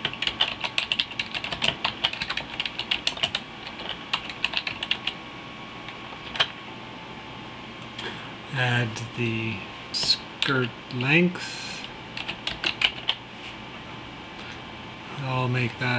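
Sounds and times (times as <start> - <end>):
typing on keyboard: 0.0 - 5.2, 5.9 - 6.5, 12.2 - 13.2.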